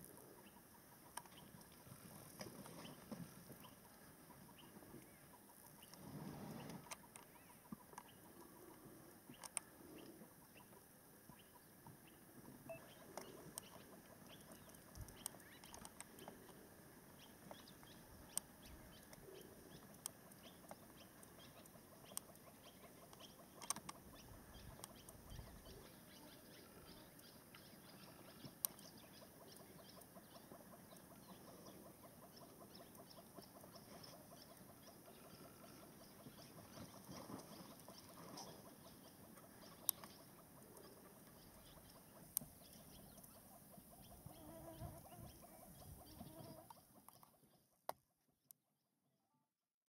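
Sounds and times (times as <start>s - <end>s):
faint bird chirping: 0.0s - 47.9s
sharp clicks: 12.8s - 16.6s, 23.1s - 24.0s.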